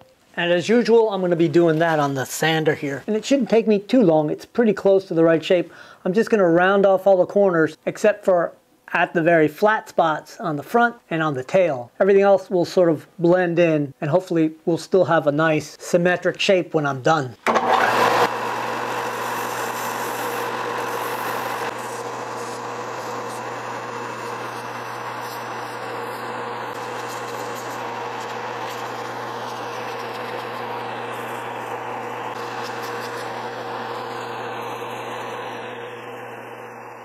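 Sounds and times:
belt sander sanding wood: 0:17.5 - 0:37.0.

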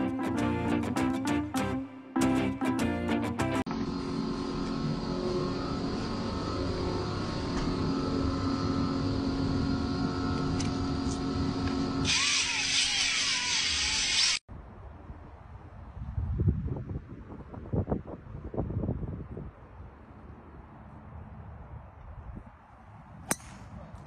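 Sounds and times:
cordless drill motor running: 0:03.8 - 0:14.4.

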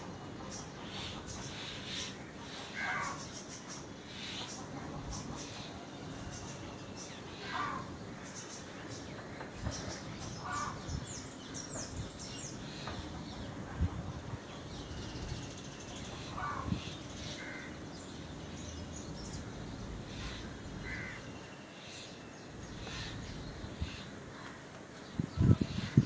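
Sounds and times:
background hiss: 0:00.0 - 0:26.0
birds chirping: 0:00.0 - 0:26.0
harsh bird calls: 0:00.0 - 0:26.0.

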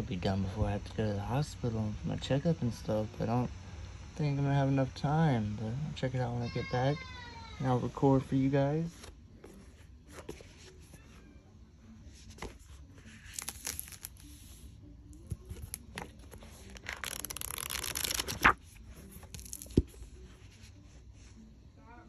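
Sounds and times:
paper rustling and scraping: 0:08.8 - 0:11.2, 0:12.1 - 0:21.3.

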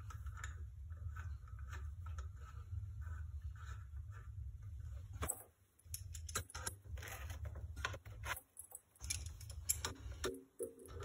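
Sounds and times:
metallic clicks and clinks: 0:05.8 - 0:06.7, 0:08.6 - 0:10.3.

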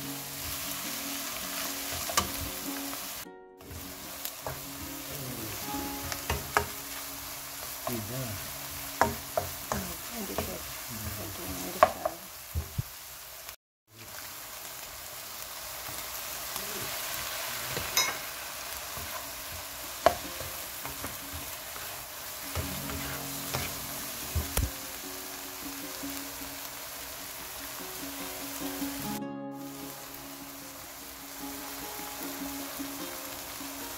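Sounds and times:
food sizzling in a wok: 0:00.0 - 0:33.9
spatula scraping and knocking pan: 0:18.9 - 0:24.7.

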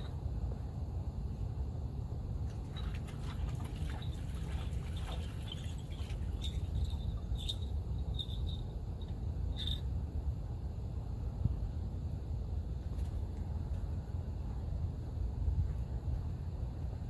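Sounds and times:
wind rumble on microphone: 0:00.0 - 0:17.0
water splashing and dripping: 0:02.4 - 0:07.5.

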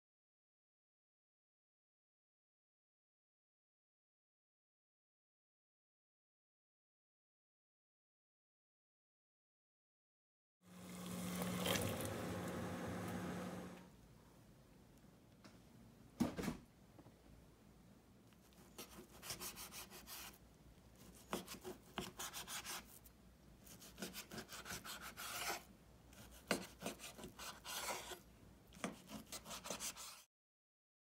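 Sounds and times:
knife slicing meat on cutting board: 0:23.7 - 0:28.2, 0:28.8 - 0:30.2.

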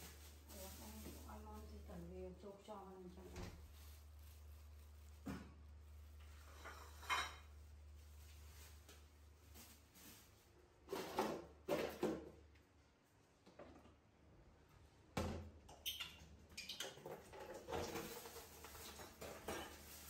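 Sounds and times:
dishes clattering in metal sink: 0:06.4 - 0:07.5, 0:15.8 - 0:20.0.

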